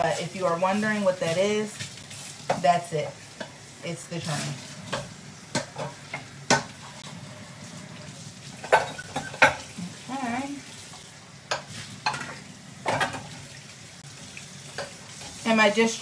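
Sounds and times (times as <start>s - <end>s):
frying sizzle: 0.0s - 16.0s
dishes and utensils clattering: 4.4s - 7.2s, 8.5s - 9.9s, 11.5s - 13.4s.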